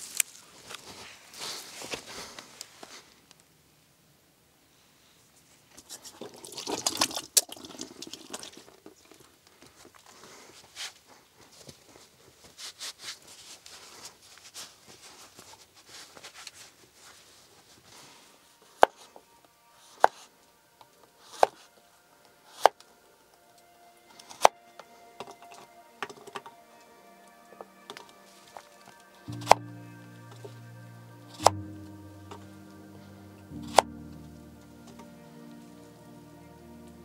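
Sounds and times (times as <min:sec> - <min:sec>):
soft crackling and rustling: 0:00.0 - 0:03.8, 0:08.4 - 0:22.9.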